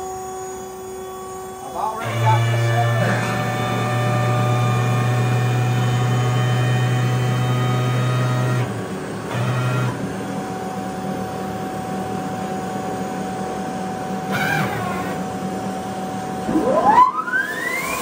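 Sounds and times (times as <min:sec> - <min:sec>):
band sawmill hum: 0:14.3 - 0:15.6.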